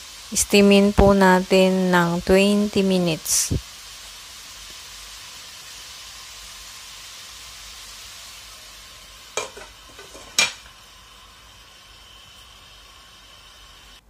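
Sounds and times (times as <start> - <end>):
water boiling under a pan lid: 0.0 - 14.0.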